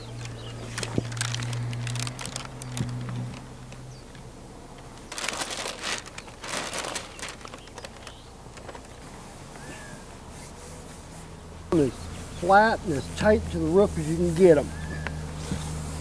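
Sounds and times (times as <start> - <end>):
plastic film peeling and crinkling: 0.0 - 3.9, 4.9 - 9.2
rustling and scuffing: 5.1 - 16.0.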